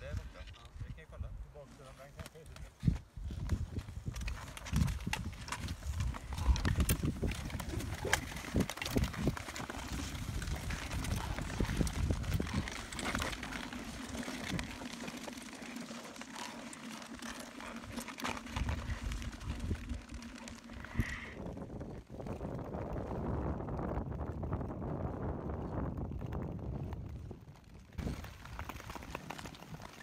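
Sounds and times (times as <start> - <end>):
skate blades scraping on ice: 2.7 - 21.4, 28.0 - 30.0
ski pole tips clicking on ice: 3.5 - 21.2.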